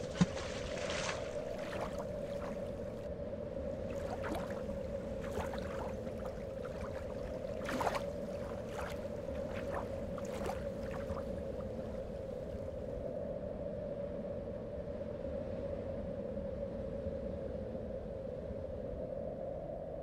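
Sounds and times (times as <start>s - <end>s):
water drips plopping on lake: 0.0s - 2.9s, 3.9s - 12.0s
steady low hum: 0.0s - 13.2s.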